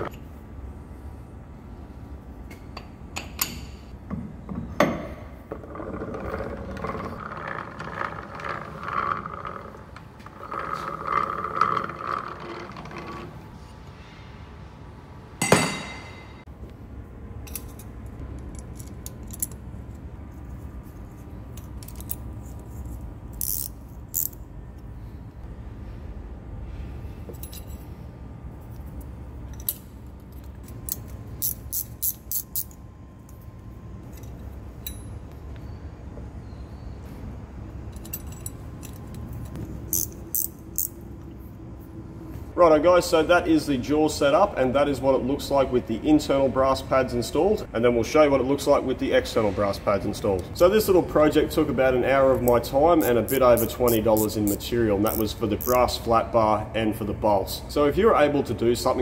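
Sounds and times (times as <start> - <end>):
loud metallic clang: 15.4 - 16.5.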